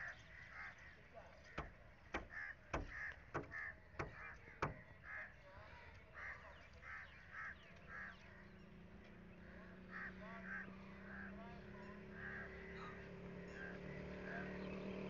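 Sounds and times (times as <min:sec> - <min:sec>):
harsh bird calls: 0:00.0 - 0:15.0
small birds chirping: 0:00.0 - 0:15.0
low engine hum: 0:07.9 - 0:15.0.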